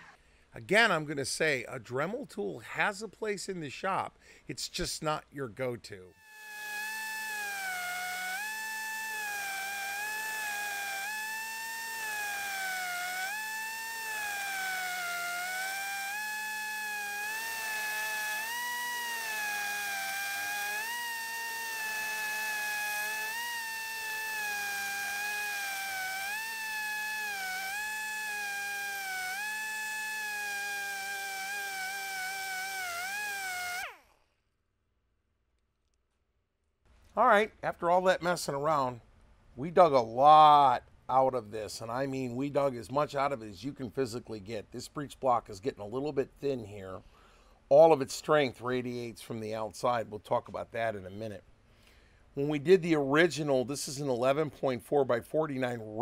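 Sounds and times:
rotary tool grinding steel: 6.2 - 34.2.

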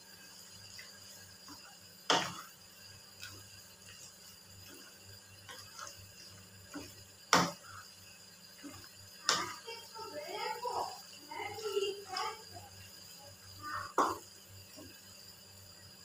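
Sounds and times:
wooden spatula stirring in pan: 0.0 - 15.4
spatula knocking against pan: 2.1 - 2.5, 6.7 - 7.6, 9.2 - 9.6.

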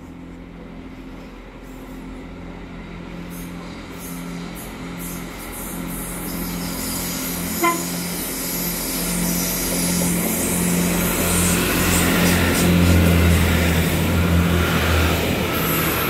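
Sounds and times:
diesel train engines: 0.0 - 16.0
train horn toot: 7.5 - 8.1.

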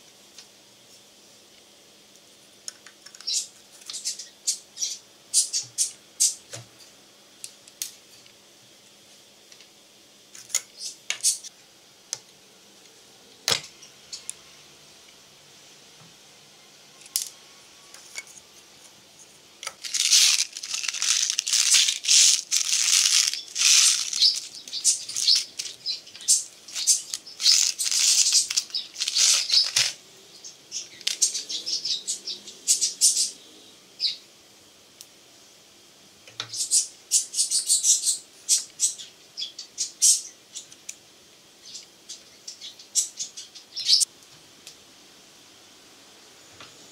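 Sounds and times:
primers rattling in plastic bottle: 19.7 - 30.0.

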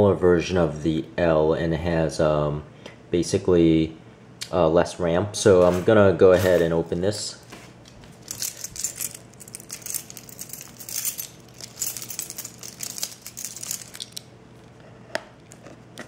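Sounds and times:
keys jingling on keyring: 8.2 - 14.2.

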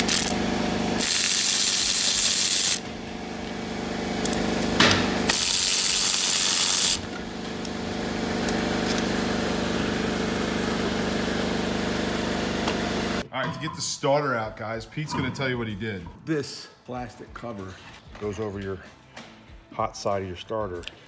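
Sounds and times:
power ratchet running: 0.0 - 3.0, 3.6 - 10.6.

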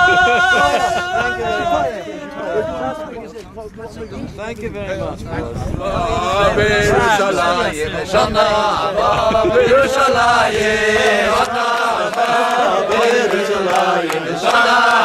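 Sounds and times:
voices chanting: 0.0 - 4.3, 5.3 - 15.0.

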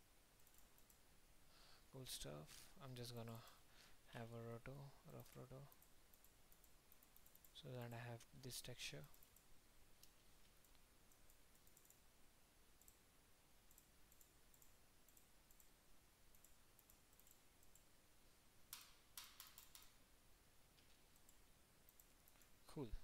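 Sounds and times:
computer mouse clicks: 0.4 - 1.0, 5.2 - 7.6, 9.0 - 12.0, 12.8 - 13.0, 13.6 - 17.9, 18.7 - 20.0, 20.8 - 22.5.

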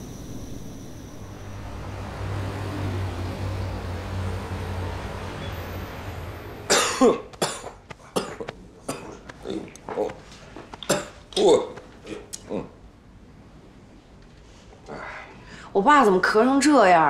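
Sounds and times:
low steady hum: 0.0 - 17.0
old man coughing: 6.7 - 9.7, 10.8 - 11.8.

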